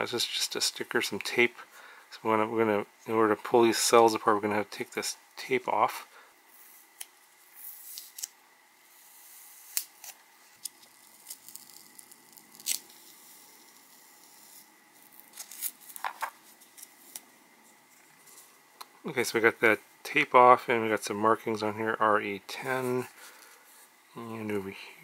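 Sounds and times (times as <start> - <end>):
adhesive tape peeling: 9.5 - 16.0.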